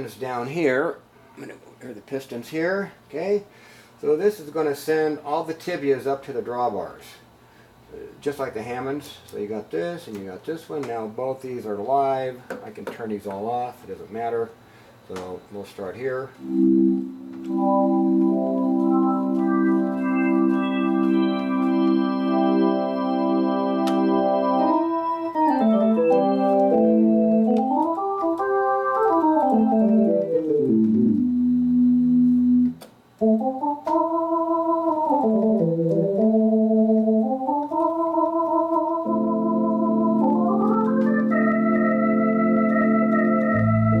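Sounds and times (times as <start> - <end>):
low bass organ note: 16.4 - 27.9, 29.4 - 32.8, 39.0 - 44.0
theatre organ playing: 16.4 - 44.0.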